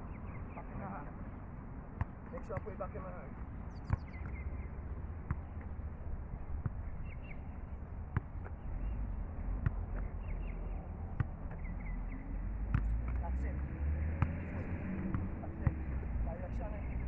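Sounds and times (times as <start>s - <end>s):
ball kick thumps: 3.8s - 4.4s, 5.2s - 5.7s, 9.6s - 10.2s, 12.7s - 13.2s, 15.1s - 15.8s.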